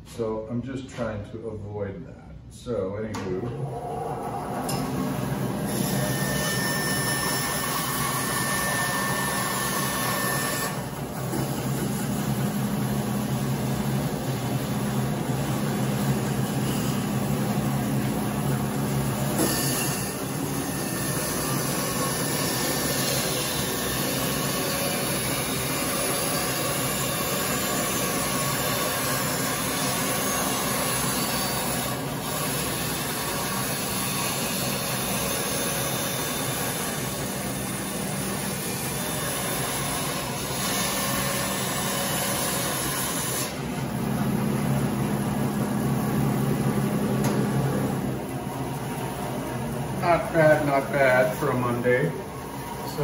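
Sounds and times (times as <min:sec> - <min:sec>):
bandsaw motor hum: 0:03.4 - 0:53.0
saw blade cutting wood: 0:05.6 - 0:10.9, 0:19.2 - 0:43.7.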